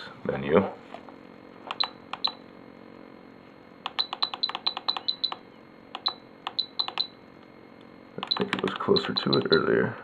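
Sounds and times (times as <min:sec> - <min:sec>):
button clicks with high beeps: 0:01.7 - 0:02.4, 0:03.9 - 0:05.4, 0:06.0 - 0:07.1, 0:08.2 - 0:09.6.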